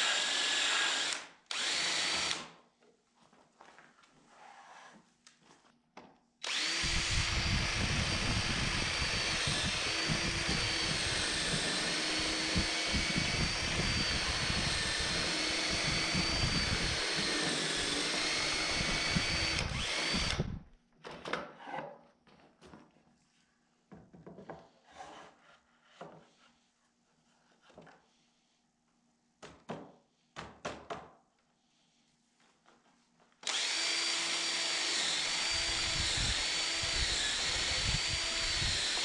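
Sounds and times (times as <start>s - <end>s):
cordless drill boring into wood: 0.0s - 2.5s, 6.4s - 20.6s, 33.4s - 39.0s.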